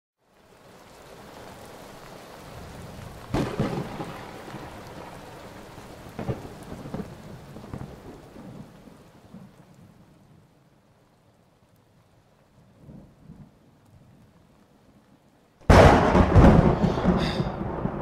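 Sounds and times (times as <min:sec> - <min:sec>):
heavy rain: 0:00.2 - 0:18.0
thunder rumbling: 0:00.7 - 0:10.5, 0:15.6 - 0:18.0
thunderclaps: 0:02.2 - 0:09.6, 0:15.6 - 0:18.0.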